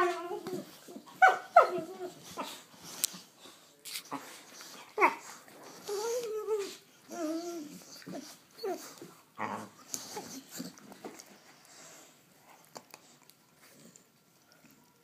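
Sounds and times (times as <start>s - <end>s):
dogs growling and whining: 0.0s - 3.4s, 4.1s - 12.2s.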